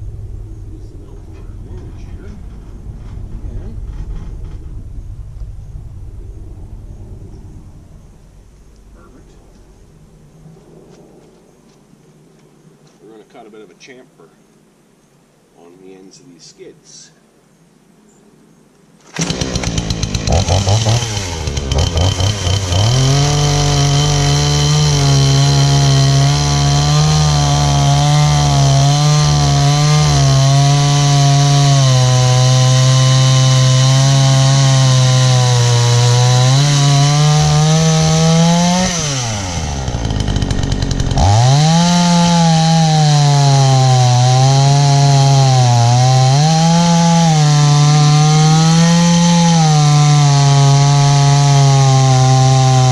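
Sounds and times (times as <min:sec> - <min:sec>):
chainsaw cutting wood: 0:19.0 - 0:52.9.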